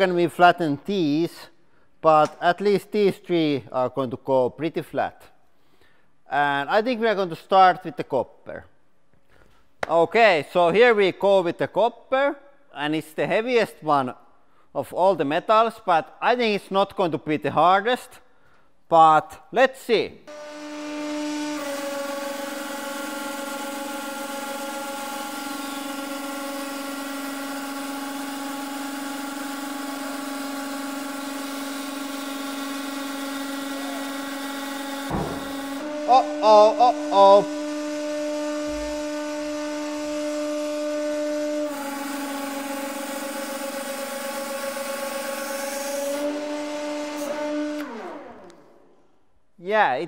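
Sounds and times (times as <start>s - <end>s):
hydraulic pump humming whine: 20.3s - 48.9s
knock: 35.1s - 35.8s
loud wavering sound: 35.1s - 37.8s.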